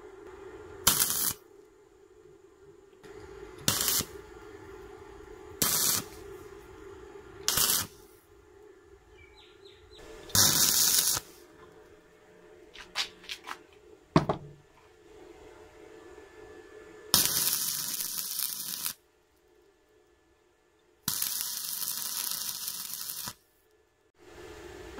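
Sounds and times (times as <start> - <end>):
steady hum: 0.0 - 22.3, 22.9 - 24.9
welding arc bursts: 0.8 - 1.4, 3.6 - 4.2, 5.6 - 6.2, 7.4 - 8.1, 10.3 - 11.4, 17.1 - 19.0, 21.1 - 23.4.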